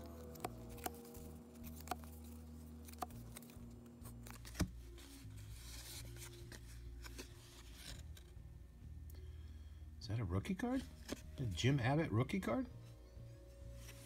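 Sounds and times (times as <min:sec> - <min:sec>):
cards sliding and rubbing: 0:00.0 - 0:08.4.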